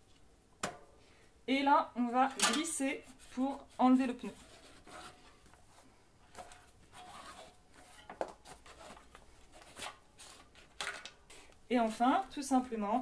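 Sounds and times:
tyre scraping against rim: 6.3s - 10.8s.

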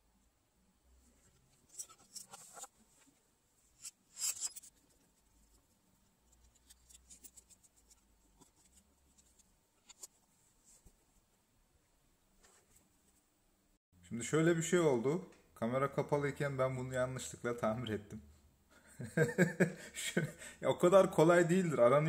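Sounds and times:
plastic parts scratchy rubbing: 1.3s - 3.2s, 3.8s - 10.2s.

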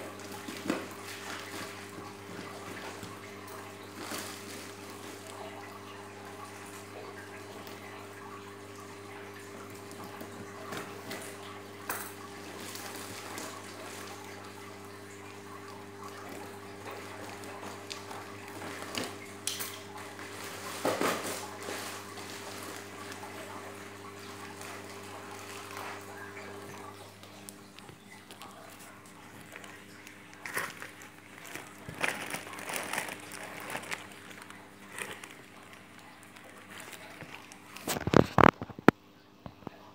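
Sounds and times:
plastic bags rustling: 0.2s - 5.8s, 20.1s - 38.8s
plastic wrap and tape tearing: 29.4s - 38.7s.

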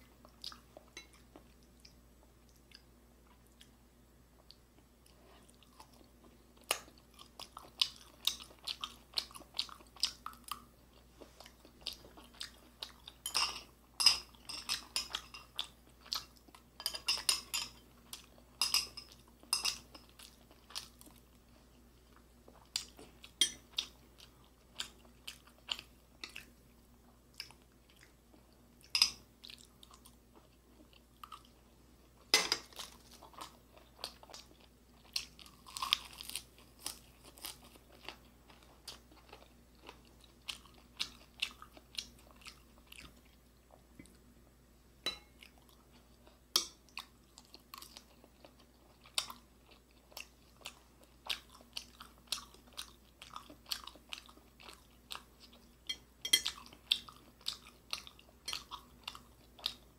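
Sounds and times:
person chewing and biting food: 32.6s - 44.2s.

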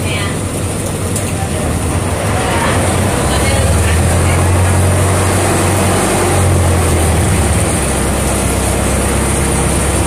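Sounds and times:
boat engine drone: 0.0s - 10.0s
water rushing: 0.0s - 10.0s
wind: 0.0s - 10.0s.

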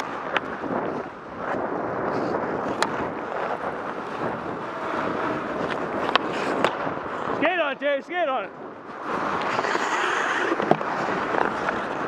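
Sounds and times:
skate blades scraping ice: 0.0s - 8.0s, 8.8s - 12.0s
wind rushing: 0.0s - 12.0s
hockey stick clacking puck: 5.6s - 6.8s, 9.3s - 12.0s.

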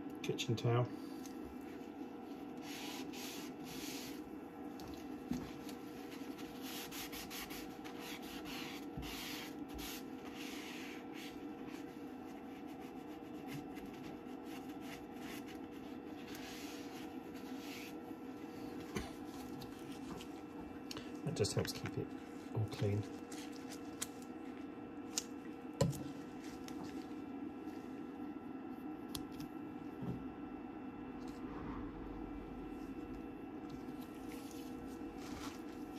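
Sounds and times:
paper towel scrubbing swishes: 1.8s - 4.3s, 5.4s - 20.4s, 33.8s - 35.9s.

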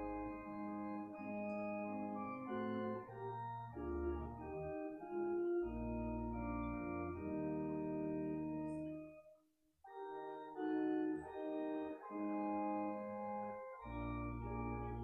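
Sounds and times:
church organ slow chords: 0.0s - 9.3s, 9.9s - 15.0s.

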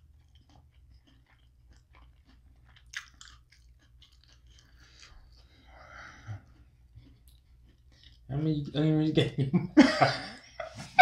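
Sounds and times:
person chewing food: 0.0s - 8.8s.

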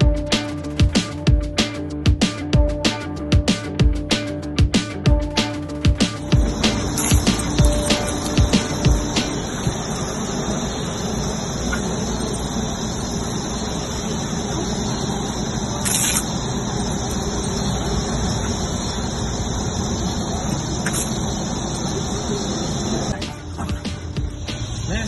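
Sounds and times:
sprinkler spray hissing: 6.0s - 23.2s.

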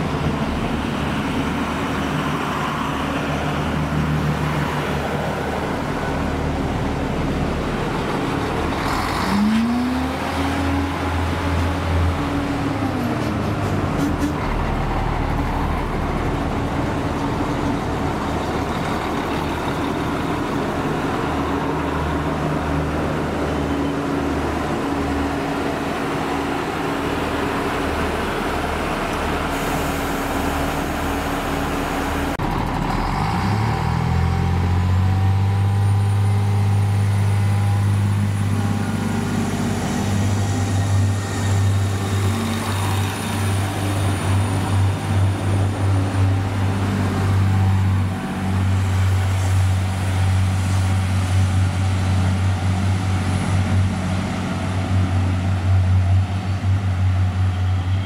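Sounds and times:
train diesel engines: 0.0s - 58.0s
air hiss: 29.4s - 30.6s.

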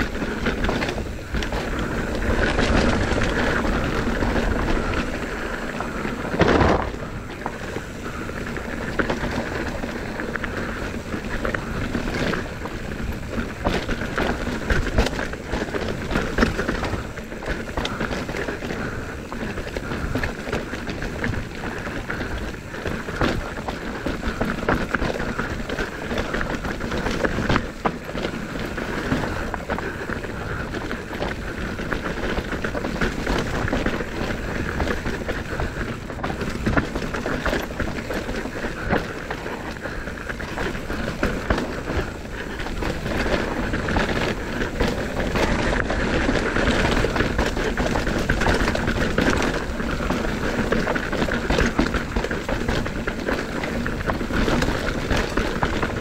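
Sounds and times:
bike parts rattling: 0.0s - 56.0s
bike tyres on dirt: 0.0s - 56.0s
wind rush: 0.0s - 56.0s.

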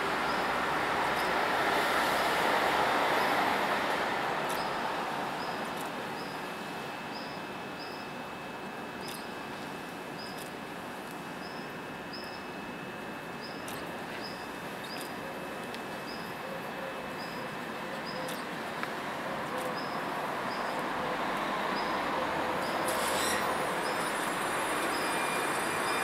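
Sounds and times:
tram rushing noise: 0.0s - 6.2s, 20.0s - 26.0s
tram hum with high whines: 0.0s - 26.0s.

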